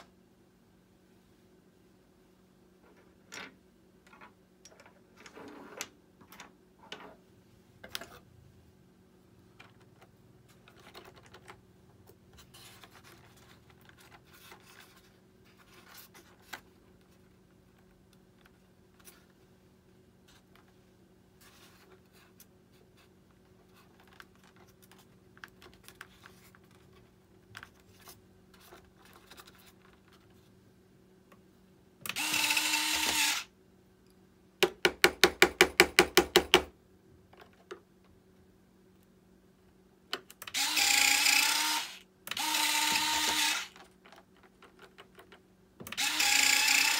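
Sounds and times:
small electric motor spinning: 32.1s - 33.5s, 40.5s - 43.8s, 45.9s - 46.9s.

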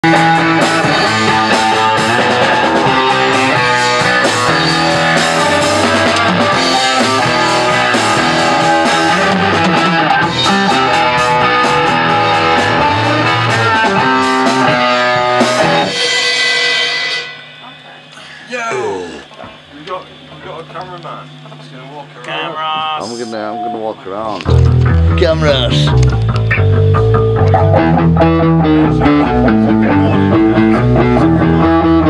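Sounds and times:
electric bass: 0.0s - 16.0s, 24.4s - 32.0s
drum kit with cymbals: 0.0s - 19.0s
electric guitar: 0.0s - 32.0s.

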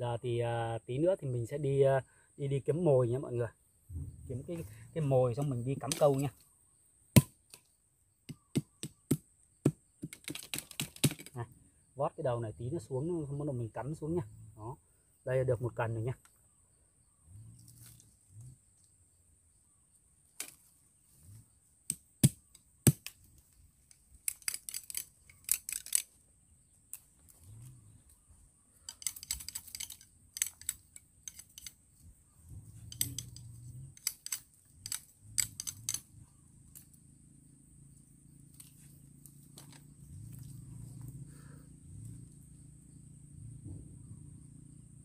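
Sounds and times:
dry bamboo sticks snapping: 5.4s - 6.4s, 10.0s - 11.4s, 20.4s - 20.7s, 21.9s - 26.2s, 28.8s - 31.8s, 32.8s - 36.1s, 38.5s - 40.5s.

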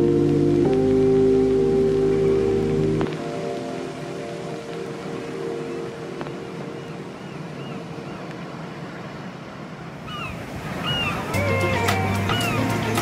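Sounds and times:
ocean waves washing over rocks: 3.1s - 13.0s.

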